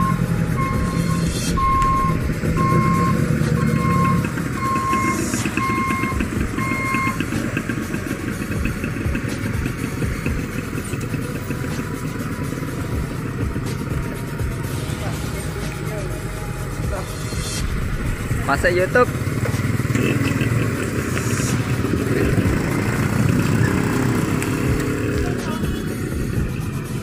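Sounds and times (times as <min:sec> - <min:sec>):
electronic beeper: 0:00.0 - 0:07.2
motorcycle engines passing: 0:00.0 - 0:27.0.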